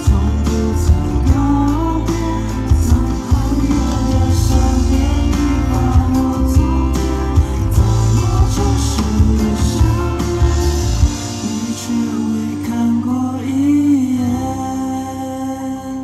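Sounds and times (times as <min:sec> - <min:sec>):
steady beat: 0:00.0 - 0:12.2
guitar: 0:00.0 - 0:16.0
heavy bass: 0:00.0 - 0:16.0
person singing: 0:00.0 - 0:16.0.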